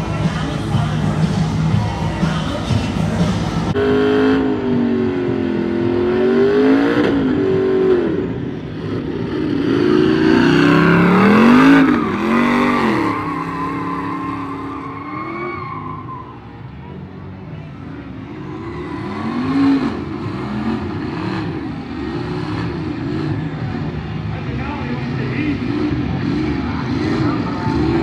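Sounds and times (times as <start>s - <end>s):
pickup engine revving: 0.0s - 15.8s, 17.8s - 28.0s.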